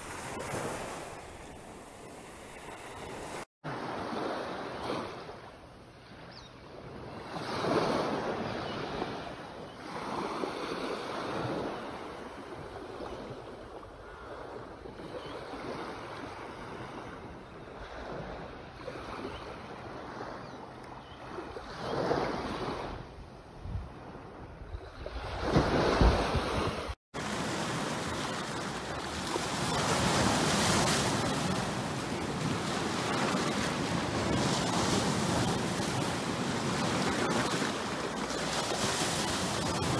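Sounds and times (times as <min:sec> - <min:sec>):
small waves washing on sand: 0:00.0 - 0:06.2, 0:25.0 - 0:39.9
wind on microphone: 0:06.9 - 0:39.9.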